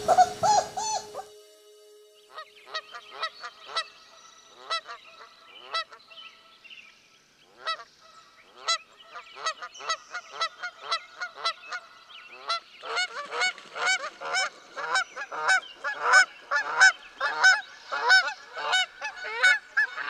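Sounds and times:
puppies crying and yelping: 0:00.0 - 0:01.3.

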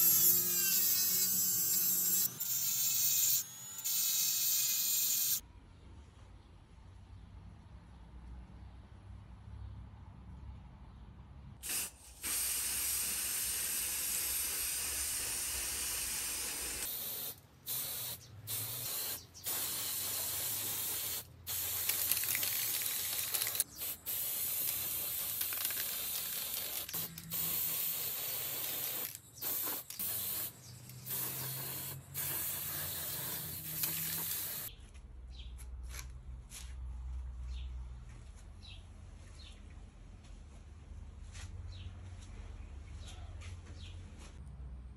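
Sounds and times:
spray paint can hissing: 0:11.6 - 0:34.7.

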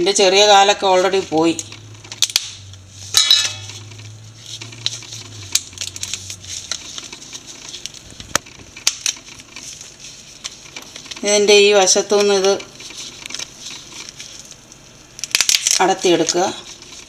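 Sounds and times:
shells clinking on steel pot: 0:03.2 - 0:03.7
crab shells clicking and knocking: 0:14.6 - 0:15.9.

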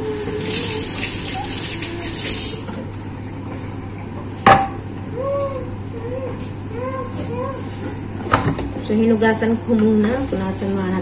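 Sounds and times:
tap water running into sink: 0:00.0 - 0:03.7.

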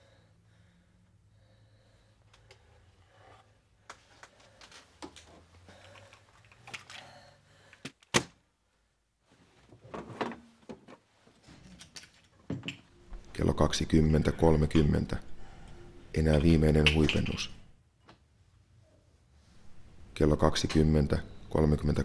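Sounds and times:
objects being handled: 0:03.2 - 0:08.2, 0:09.4 - 0:12.9.

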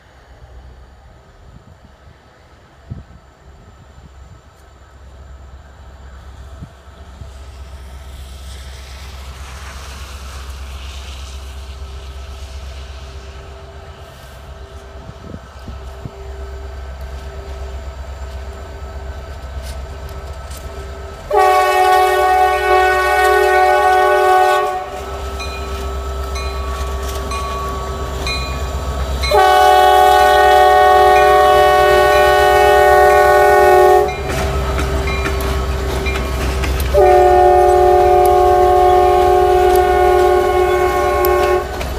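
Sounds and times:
diesel engines rumbling: 0:04.9 - 0:41.9
locomotive air horn chord: 0:19.6 - 0:28.6, 0:29.2 - 0:41.9.

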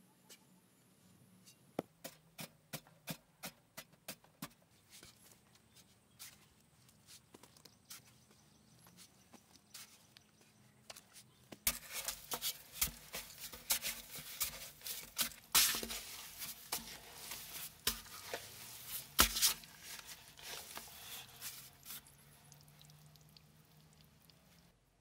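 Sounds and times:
shovel scraping into sand: 0:11.7 - 0:22.2.

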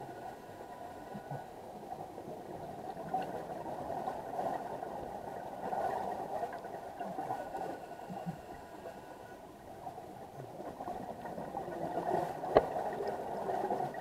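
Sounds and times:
muffled underwater hiss: 0:00.0 - 0:14.0
faint thin tones: 0:04.0 - 0:13.9.

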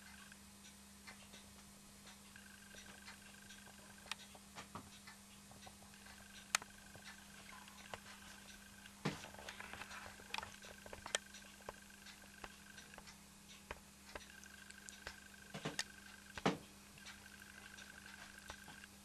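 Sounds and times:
light clicks and ticks: 0:00.0 - 0:19.0
toy engine humming: 0:17.0 - 0:18.9.

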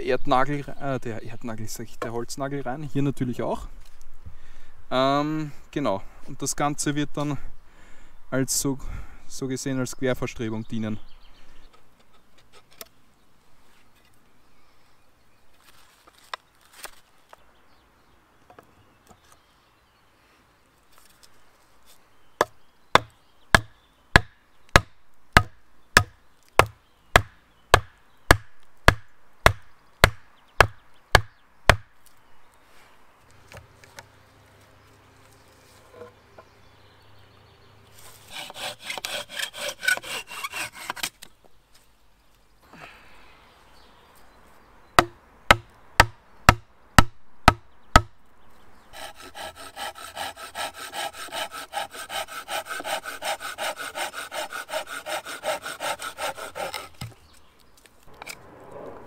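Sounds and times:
hand saw cutting wood: 0:38.1 - 0:41.2, 0:49.0 - 0:57.2
wooden club knocking stake: 0:45.0 - 0:48.1.

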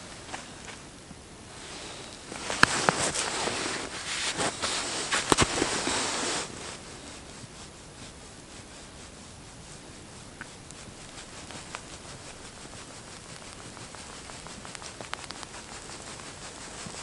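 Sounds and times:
outdoor hush: 0:00.0 - 0:17.0
jacket rustling: 0:01.9 - 0:07.0
faint ticks: 0:09.8 - 0:17.0.

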